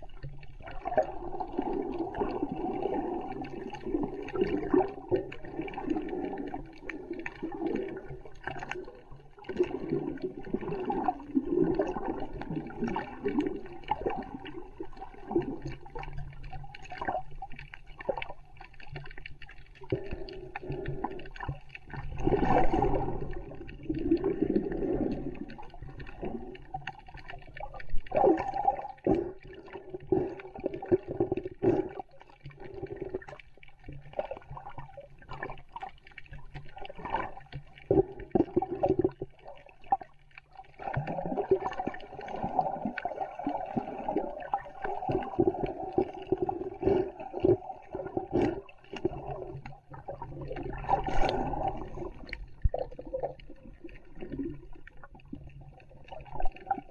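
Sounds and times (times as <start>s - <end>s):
muffled underwater sloshing: 0.0s - 56.9s.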